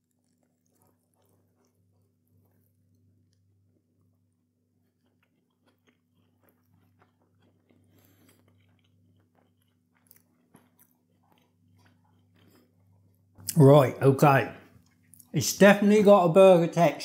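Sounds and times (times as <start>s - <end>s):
chewing mouth clicks: 0.0s - 2.7s, 4.8s - 13.6s
low steady hum: 0.0s - 17.0s.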